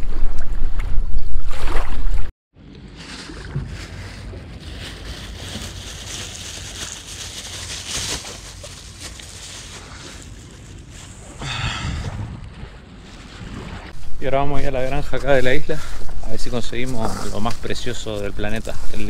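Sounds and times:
plastic bag crinkling: 0:03.1 - 0:11.1
wind on microphone: 0:11.0 - 0:14.4.

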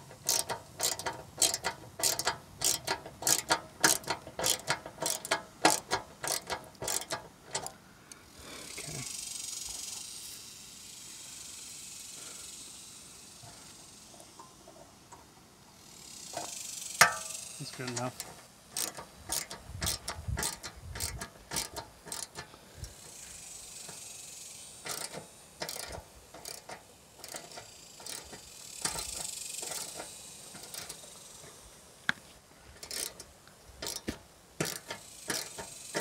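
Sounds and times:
socket ratchet clicking: 0:00.0 - 0:07.8, 0:15.8 - 0:31.6, 0:32.8 - 0:36.0.

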